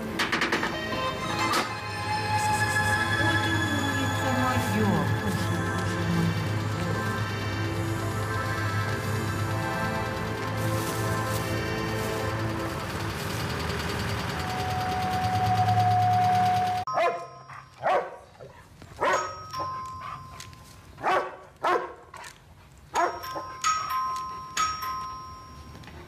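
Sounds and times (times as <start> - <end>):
music: 0.0 - 16.8
dog barking loudly: 17.0 - 18.3, 19.0 - 19.3, 21.0 - 22.0, 23.0 - 23.4.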